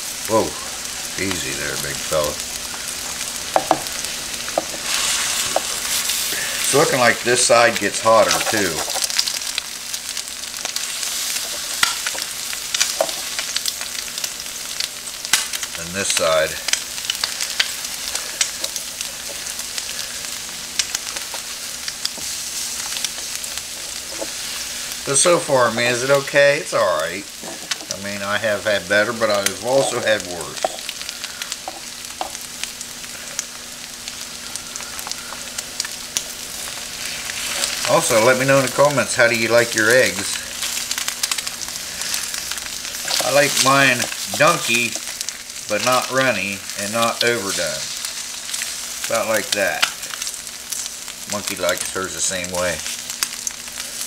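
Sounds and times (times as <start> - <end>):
food sizzling on griddle: 0.0 - 54.0
spatula scraping and tapping griddle: 4.5 - 6.4
spatula scraping griddle: 4.5 - 9.4.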